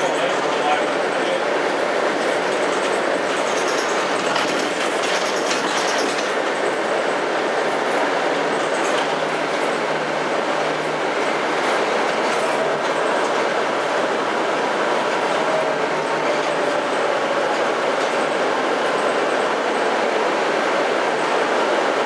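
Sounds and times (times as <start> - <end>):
bus engine and road noise: 0.0 - 22.0.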